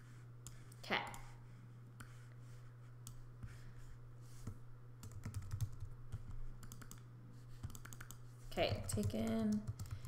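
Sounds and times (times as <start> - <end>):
typing on computer keyboard: 5.0 - 7.0, 7.6 - 10.0.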